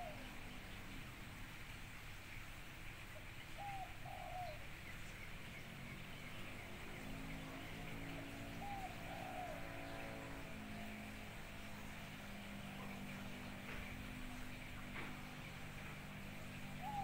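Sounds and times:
dove cooing: 0:00.0 - 0:00.4, 0:03.6 - 0:04.7, 0:08.4 - 0:11.2, 0:16.2 - 0:17.0.

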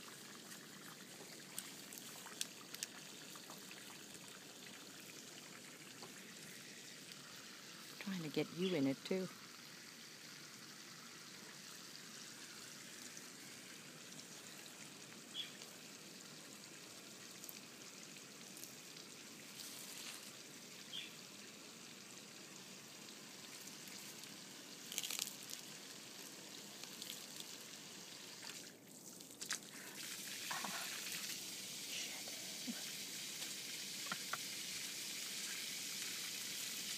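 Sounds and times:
faint steady hiss: 0:00.0 - 0:36.9
tortoise crunching leaves: 0:23.5 - 0:27.4.

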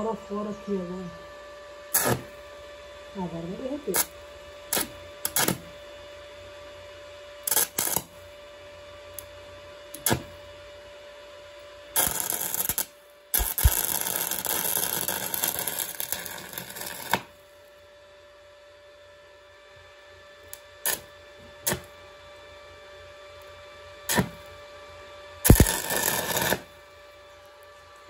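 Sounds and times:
welding arc crackling: 0:01.9 - 0:02.4, 0:03.5 - 0:04.1, 0:04.7 - 0:05.8, 0:07.4 - 0:08.3, 0:10.0 - 0:10.4, 0:12.0 - 0:17.4, 0:20.8 - 0:21.9, 0:24.1 - 0:24.5, 0:25.4 - 0:26.9.

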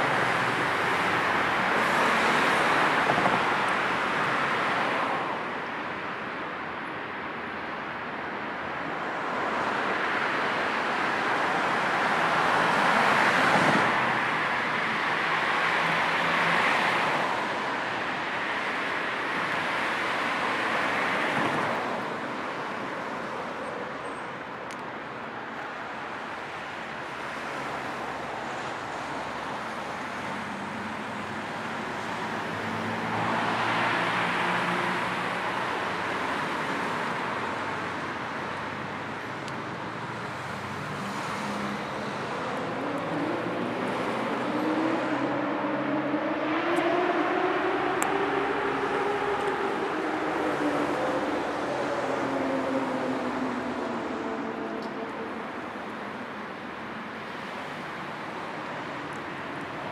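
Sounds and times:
cars passing: 0:00.0 - 0:59.9.

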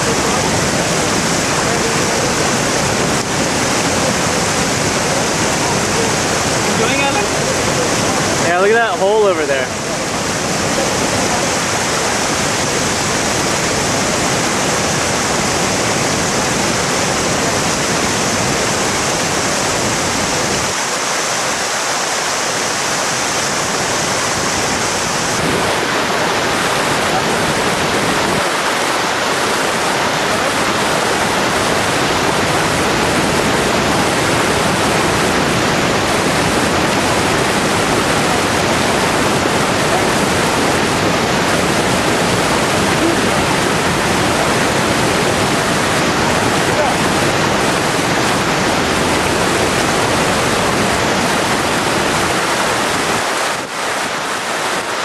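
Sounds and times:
waterfall roaring: 0:00.0 - 0:55.0.

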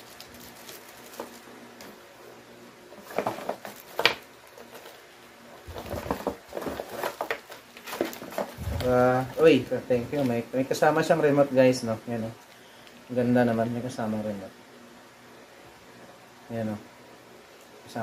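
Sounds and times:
plastic and cardboard handling: 0:00.0 - 0:02.0, 0:02.9 - 0:10.4.

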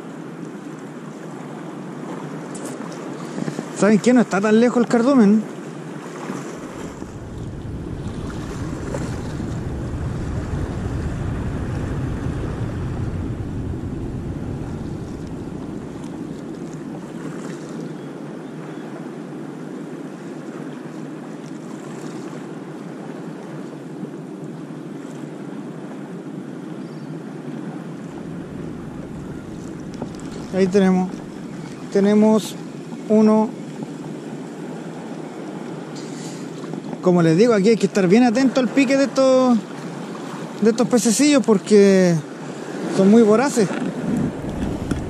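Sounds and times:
surf washing on beach: 0:00.0 - 0:45.0
wind on microphone: 0:06.1 - 0:18.0, 0:26.8 - 0:37.0, 0:42.3 - 0:45.0
low rumble: 0:06.8 - 0:16.6, 0:28.0 - 0:31.9, 0:44.2 - 0:45.0.

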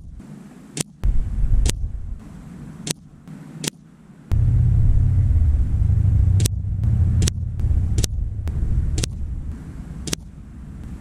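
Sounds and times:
loud low rumble: 0:04.3 - 0:11.0.

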